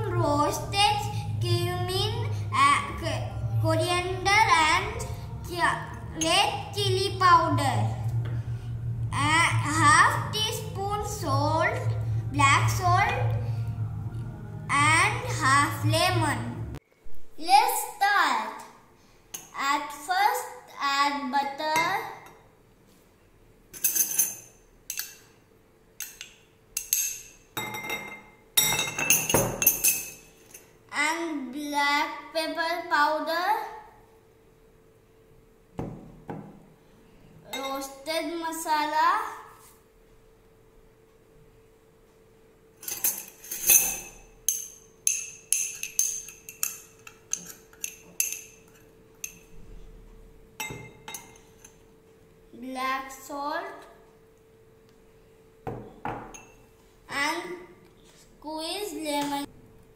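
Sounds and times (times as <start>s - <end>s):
metal spoon clinking on glass bowl: 23.8s - 25.3s, 26.0s - 30.7s, 42.8s - 49.5s, 50.6s - 51.8s, 56.3s - 56.6s
spoon scraping glass bowl: 45.6s - 49.5s.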